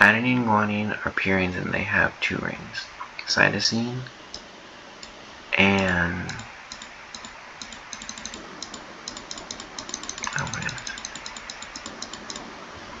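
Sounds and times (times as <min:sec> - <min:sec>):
computer keys clicking: 0:05.0 - 0:12.5.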